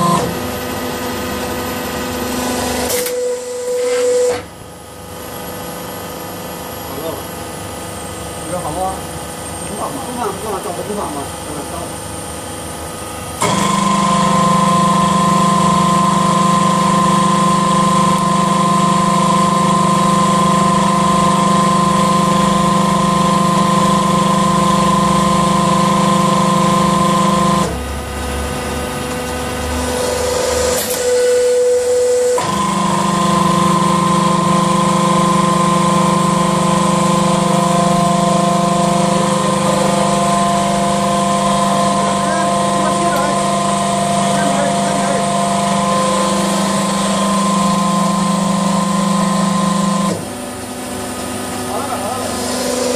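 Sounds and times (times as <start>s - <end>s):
machine motor hum and whine: 0.0s - 52.9s
sharp click: 2.9s - 3.2s.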